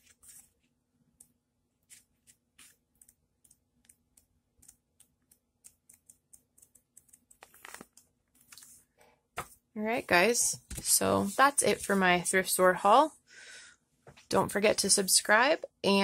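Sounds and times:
book pages flipping: 0.0s - 0.8s, 1.8s - 9.6s
book closing rustle: 7.4s - 8.7s.

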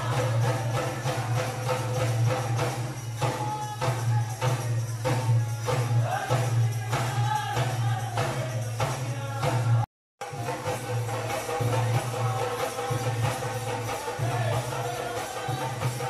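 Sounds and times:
folk singing: 0.0s - 9.9s, 10.5s - 16.0s.

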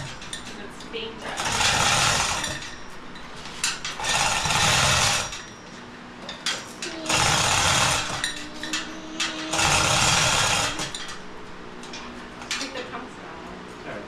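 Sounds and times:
power wrench bursts: 1.4s - 2.8s, 3.6s - 5.5s, 6.9s - 11.2s.

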